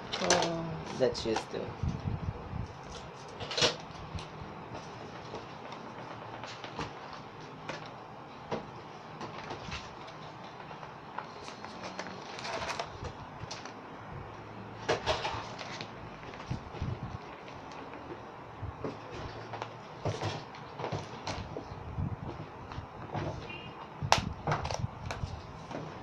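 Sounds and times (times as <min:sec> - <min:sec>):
plastic packaging crinkling: 0:11.1 - 0:13.8.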